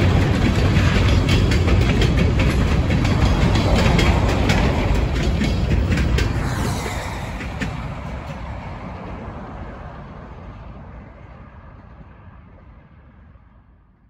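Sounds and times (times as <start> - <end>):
faint train wheel clicks: 0.0 - 7.0
freight train rumbling: 0.0 - 14.0
highway traffic: 0.0 - 14.0.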